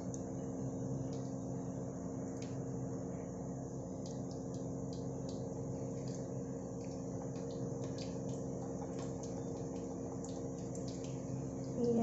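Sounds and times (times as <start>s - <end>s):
steady low hum: 0.0s - 12.0s
bubbles popping in pot: 4.0s - 12.0s.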